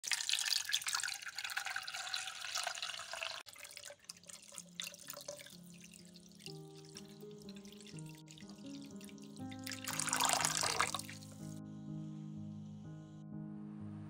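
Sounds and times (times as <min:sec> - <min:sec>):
water running from tap: 0:00.0 - 0:11.5
soft music: 0:03.6 - 0:14.0.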